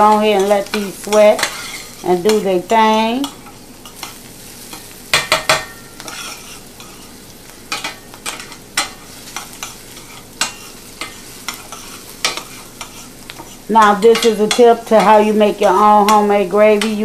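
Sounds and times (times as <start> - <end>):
onion sizzling in a frying pan: 0.0 - 17.0
spoon scraping and clinking on pan: 0.1 - 2.5, 3.2 - 7.1, 7.7 - 15.2
spoon knocking on pan: 4.7 - 6.2.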